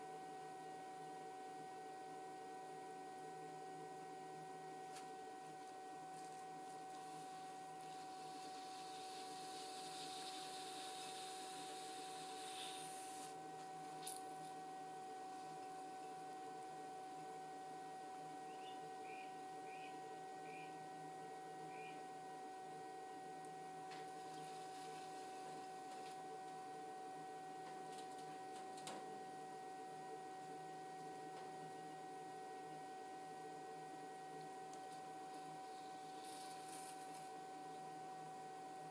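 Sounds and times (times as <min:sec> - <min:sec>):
potter's wheel motor whine: 0:06.7 - 0:27.6.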